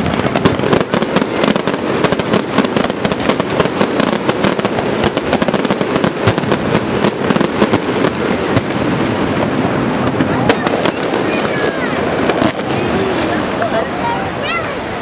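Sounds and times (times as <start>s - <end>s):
fireworks bangs and crackles: 0.0s - 15.0s.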